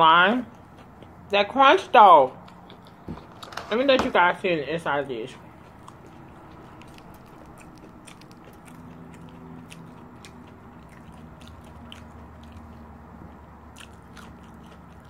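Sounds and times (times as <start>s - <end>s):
crunchy chewing: 0.4s - 1.3s, 2.3s - 3.1s, 5.3s - 15.0s.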